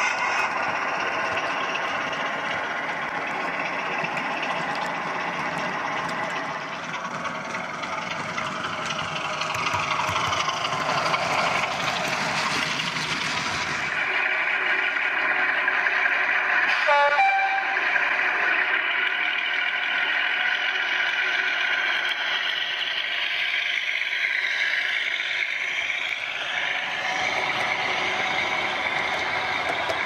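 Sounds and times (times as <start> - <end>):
model diesel engine running: 0.0 - 30.0
short horn blast: 16.7 - 17.8.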